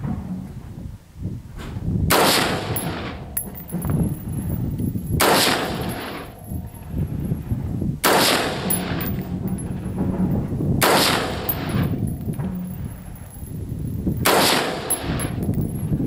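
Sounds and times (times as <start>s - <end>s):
rifle shots with echo: 2.1s - 3.8s, 5.2s - 6.8s, 8.0s - 9.6s, 10.8s - 12.2s, 14.2s - 15.4s.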